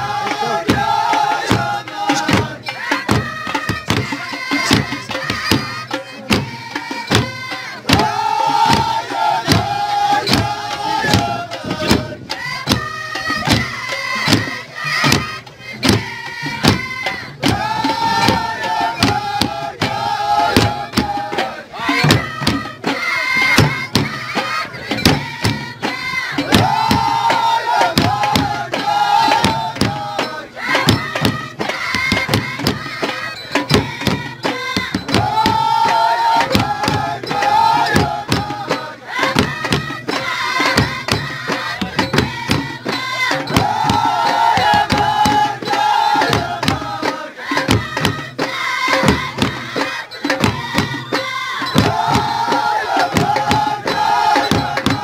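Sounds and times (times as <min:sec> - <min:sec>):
frame drums fast rhythm: 0:00.0 - 0:55.0
group of voices singing: 0:00.0 - 0:55.0.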